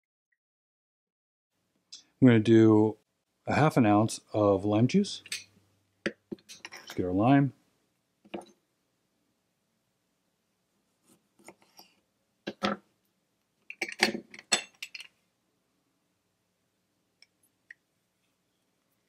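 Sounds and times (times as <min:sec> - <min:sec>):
glassware and bar tools clinking: 0:05.2 - 0:05.6, 0:06.4 - 0:07.0, 0:13.7 - 0:15.1.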